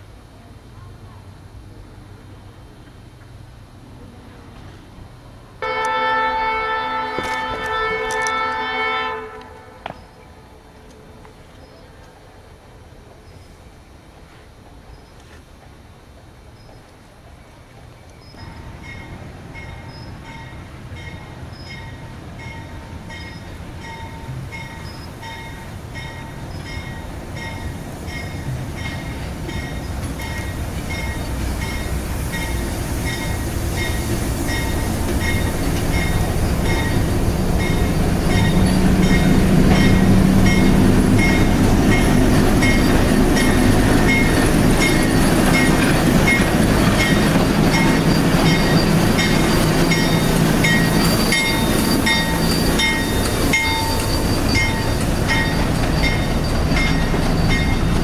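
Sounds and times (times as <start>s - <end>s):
diesel locomotive engine rumble: 0.0s - 58.0s
locomotive bell ringing: 18.4s - 58.0s.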